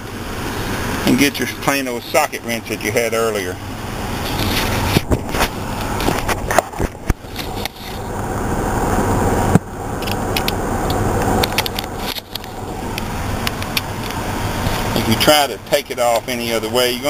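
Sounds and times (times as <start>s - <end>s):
rubbing and rustling: 4.0s - 8.2s.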